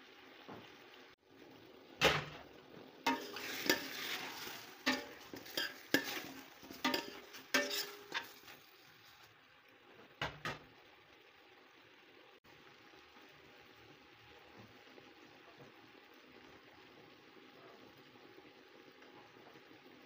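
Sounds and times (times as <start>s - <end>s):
chicken sizzling in oil: 0.0s - 20.0s
utensil scraping metal pot: 3.1s - 9.3s.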